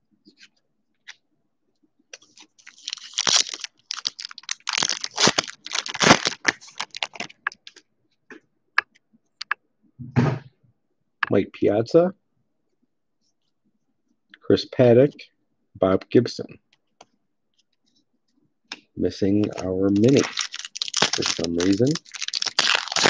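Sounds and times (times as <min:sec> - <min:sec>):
foil wrapper crinkling: 0:02.2 - 0:07.8, 0:19.4 - 0:23.0.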